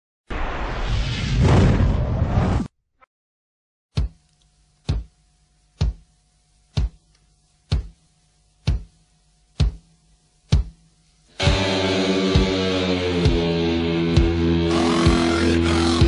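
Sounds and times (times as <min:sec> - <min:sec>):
faint steady hum: 0:04.0 - 0:12.5.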